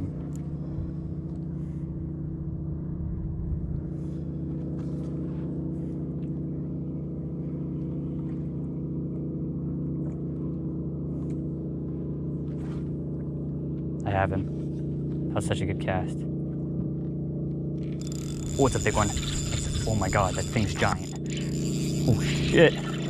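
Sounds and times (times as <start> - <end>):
boat motor humming: 0.0 - 23.0.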